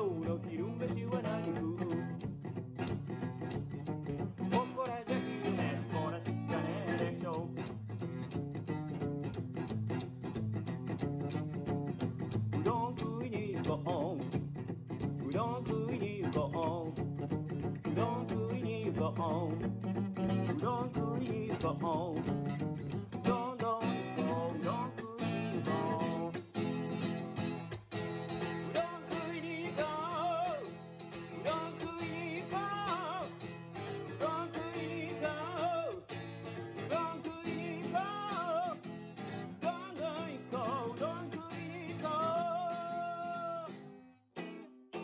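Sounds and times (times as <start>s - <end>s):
man singing: 0.0s - 2.5s, 4.2s - 7.8s, 12.5s - 26.8s, 28.5s - 43.9s
acoustic guitar strumming: 0.0s - 45.0s.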